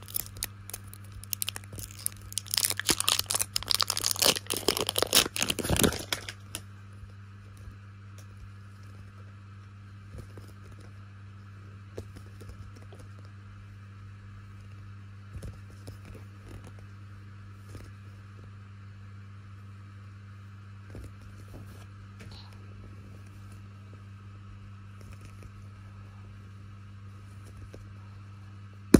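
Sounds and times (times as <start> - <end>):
plastic wrapper crinkling and tearing: 0.0 - 6.6
low hum: 0.0 - 28.9.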